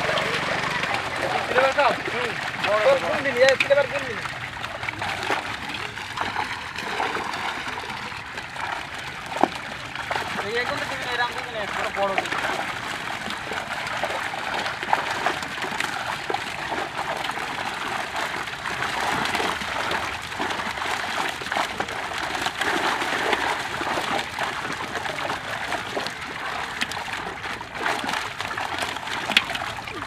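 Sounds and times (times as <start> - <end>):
fish splashing at the surface: 0.0 - 30.0
water sloshing: 0.0 - 30.0.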